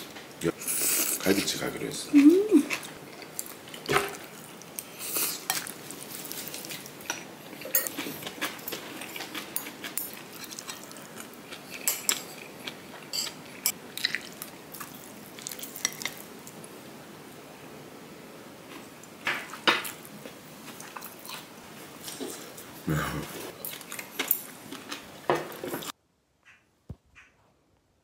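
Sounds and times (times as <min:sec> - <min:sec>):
metal spoons clinking on pot: 0:07.6 - 0:08.0, 0:13.1 - 0:13.8.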